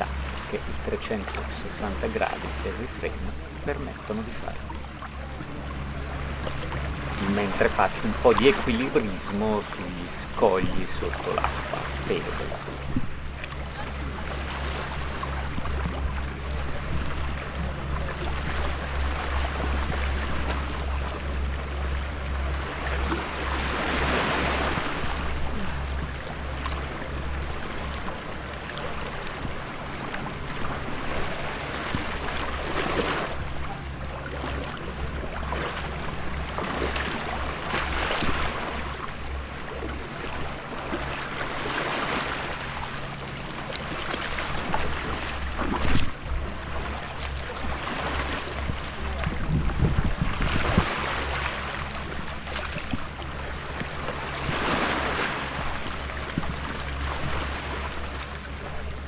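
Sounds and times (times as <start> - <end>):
waves washing over rocks: 0.0 - 4.7, 6.5 - 13.0, 40.2 - 58.0
wind rumble on microphone: 10.2 - 41.8, 42.4 - 59.0.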